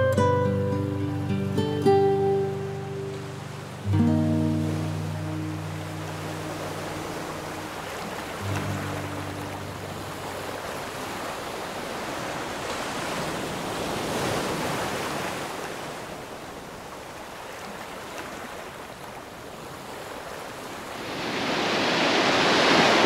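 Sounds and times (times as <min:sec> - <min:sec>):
surf breaking on pebble beach: 0:20.8 - 0:23.0.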